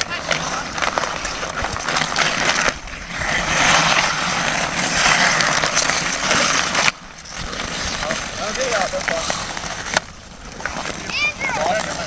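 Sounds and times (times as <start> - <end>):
skate blades scraping ice: 0.0 - 12.0.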